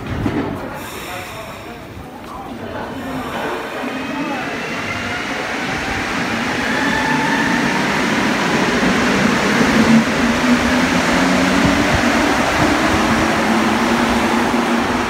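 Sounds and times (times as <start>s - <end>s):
subway train hum with rising whine: 0.0s - 15.0s.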